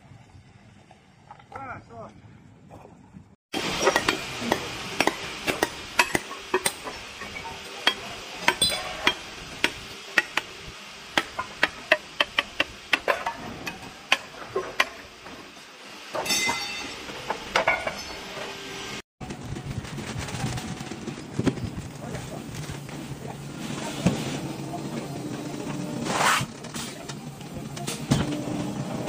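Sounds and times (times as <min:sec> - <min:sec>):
hammer striking stone slate: 0:03.8 - 0:10.5.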